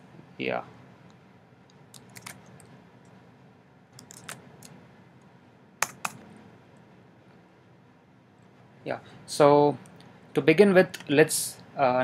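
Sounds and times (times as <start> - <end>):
faint room hiss: 0.0 - 12.0
keyboard key clicks: 5.8 - 6.2.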